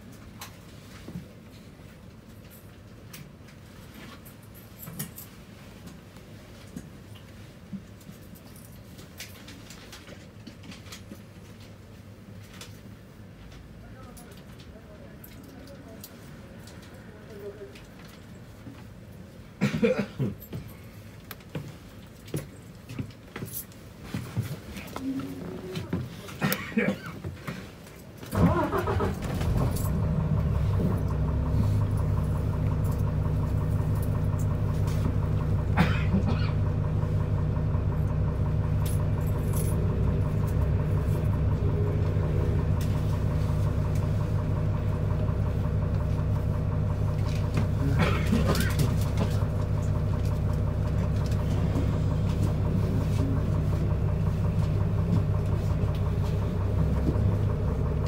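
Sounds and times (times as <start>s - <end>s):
bus engine starting and idling: 25.6s - 58.0s.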